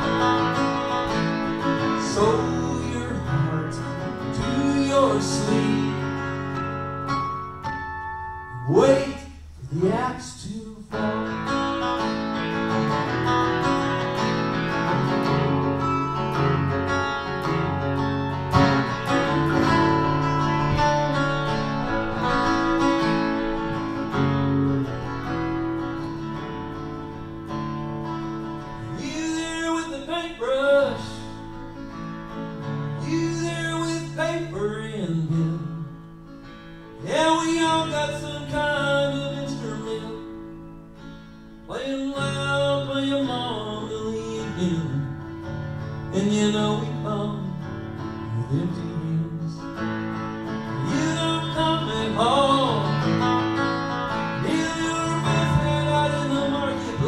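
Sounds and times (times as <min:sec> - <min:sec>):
wavering melody phrases: 0:00.0 - 0:30.4
acoustic guitar strummed chords: 0:00.0 - 0:57.0.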